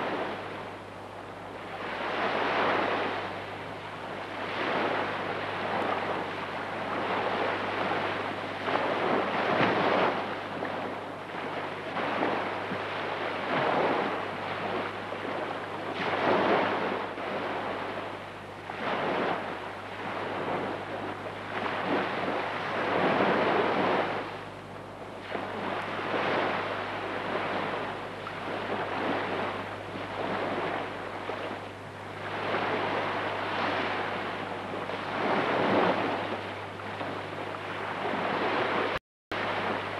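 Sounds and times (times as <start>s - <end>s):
steady low hum: 0.0s - 39.9s
surf washing in: 0.0s - 39.9s.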